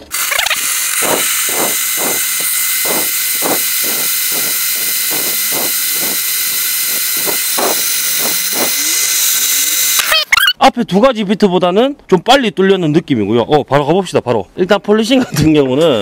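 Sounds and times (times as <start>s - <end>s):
low pulses: 0.0s - 10.1s
drill hole saw grinding tile: 0.0s - 10.5s.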